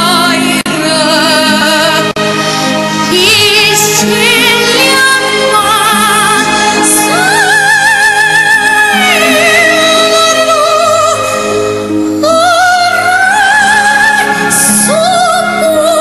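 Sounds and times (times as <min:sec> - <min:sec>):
instrumental accompaniment: 0:00.0 - 0:16.0.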